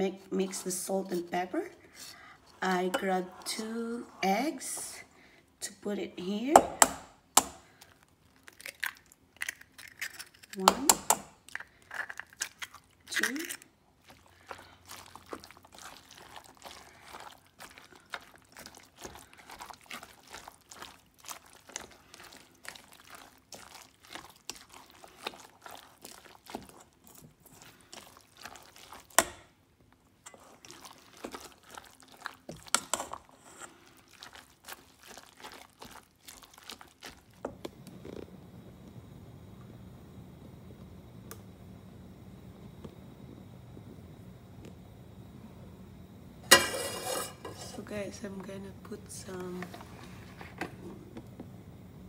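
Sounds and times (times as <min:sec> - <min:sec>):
wet squishing and sloshing: 0:11.4 - 0:37.4.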